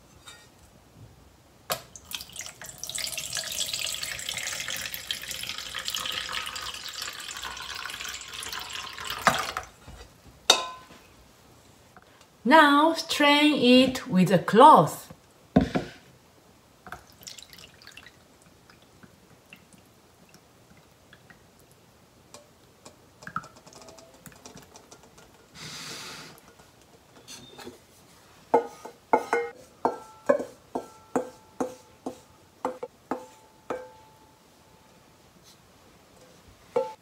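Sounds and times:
slurry pouring: 0:02.0 - 0:09.8, 0:17.0 - 0:18.9
wooden spatula knocking in metal bowl: 0:28.5 - 0:34.0.

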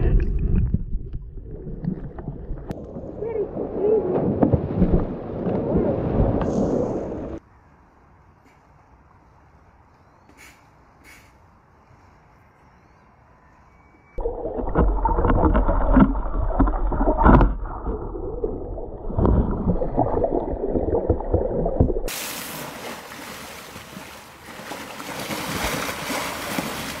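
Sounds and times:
rushing water hiss: 0:22.1 - 0:23.8.

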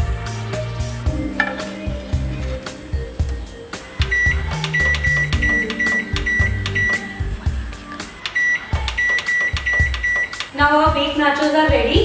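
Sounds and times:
background music: 0:00.0 - 0:12.0
microwave keypad beeping: 0:04.0 - 0:07.3, 0:08.0 - 0:10.6.

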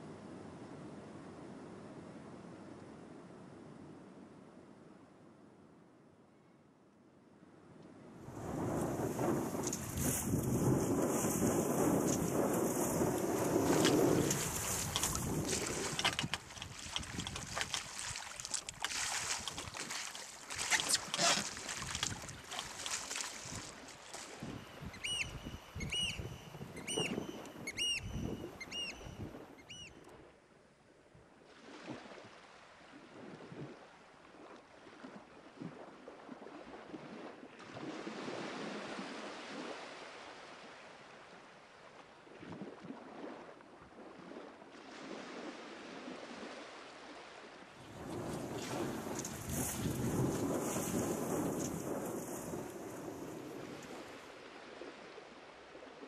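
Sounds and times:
water rushing around boat: 0:08.3 - 0:29.3, 0:31.4 - 0:56.0
wind buffeting microphone: 0:08.3 - 0:29.9, 0:47.8 - 0:54.2.

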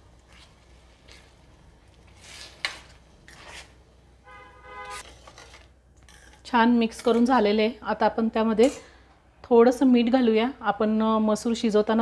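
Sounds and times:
spatula scraping wet food: 0:02.1 - 0:03.8.

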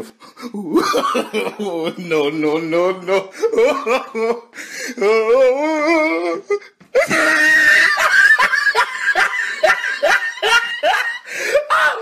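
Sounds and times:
shrill laughter: 0:07.0 - 0:12.0.

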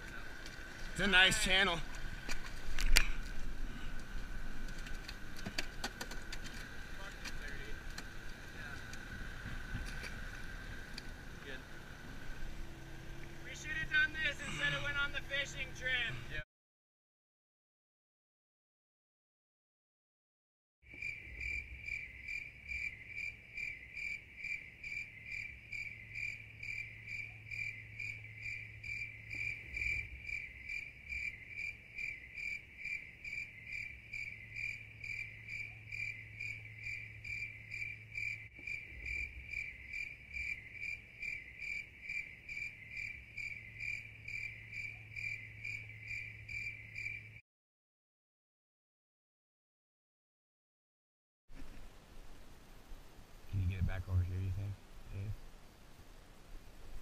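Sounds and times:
crickets chirping: 0:00.0 - 0:16.4, 0:20.9 - 0:47.4.

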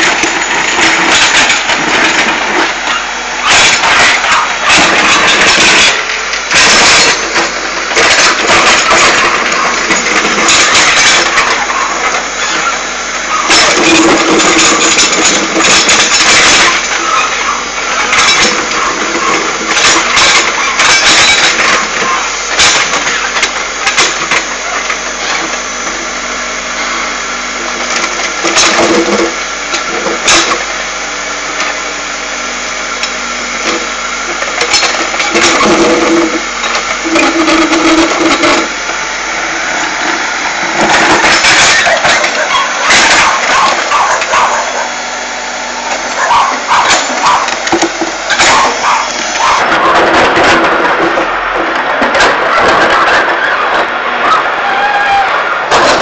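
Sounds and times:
sharp knocks and clanks: 0:00.0 - 0:12.7, 0:13.3 - 0:25.6, 0:33.6 - 0:38.8, 0:40.0 - 0:44.9, 0:45.9 - 0:53.9
diesel engine running: 0:00.0 - 0:56.0.

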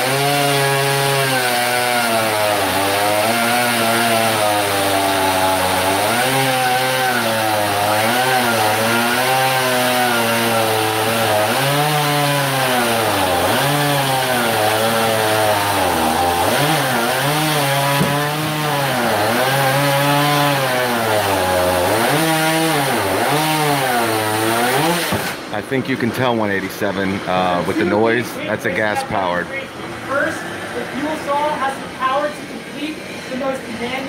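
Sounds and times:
cordless chainsaw cutting: 0:00.0 - 0:26.0
gas chainsaw cutting log: 0:00.0 - 0:29.4.

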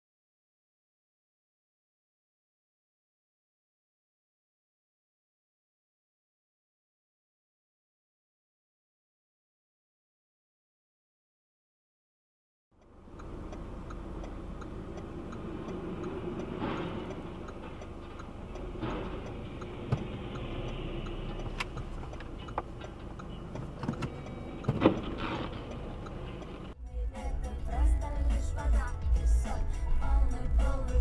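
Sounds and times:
faint regular ticking: 0:12.8 - 0:26.8
car engine and road rumble: 0:12.8 - 0:31.0.

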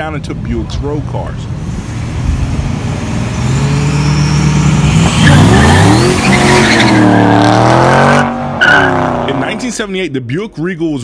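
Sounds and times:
car engines revving and launching: 0:01.5 - 0:09.9.

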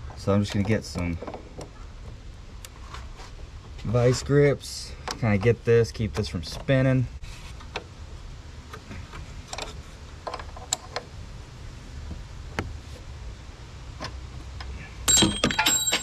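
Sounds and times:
loud metallic clanks ringing: 0:15.1 - 0:16.0.

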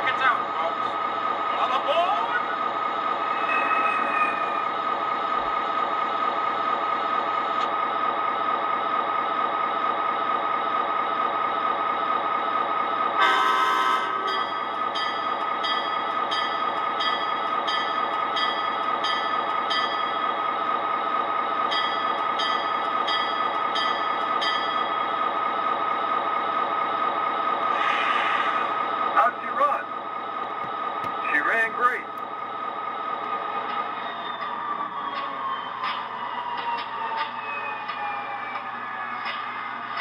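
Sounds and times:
diesel engine hum: 0:00.0 - 0:40.0
locomotive bell ringing: 0:13.2 - 0:20.6, 0:21.5 - 0:25.5.

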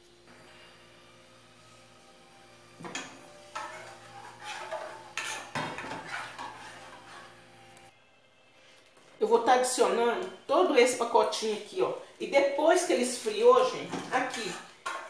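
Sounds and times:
utensil scraping a pan: 0:02.9 - 0:07.6, 0:13.7 - 0:15.0.

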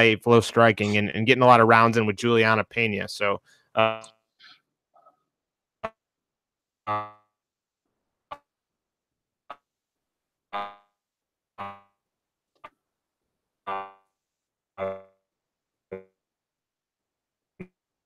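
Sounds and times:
sparse keyboard notes: 0:00.0 - 0:04.1.

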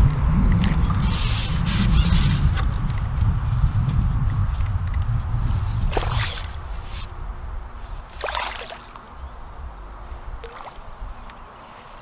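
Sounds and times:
wind rumble on microphone: 0:00.0 - 0:12.0
fish splashing at water surface: 0:05.9 - 0:06.6, 0:08.1 - 0:09.0.

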